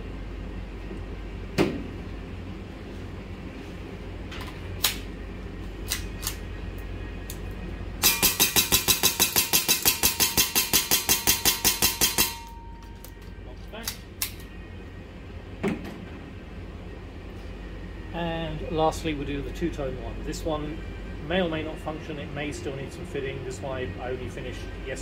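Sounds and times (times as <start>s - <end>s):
pistol handling clicks: 5.9s - 6.4s.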